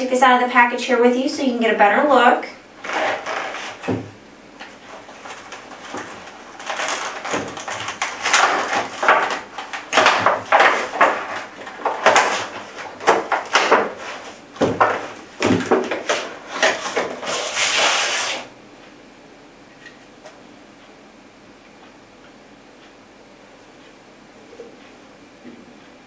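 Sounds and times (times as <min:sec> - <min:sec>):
plastic packaging crackling: 0:05.1 - 0:13.8.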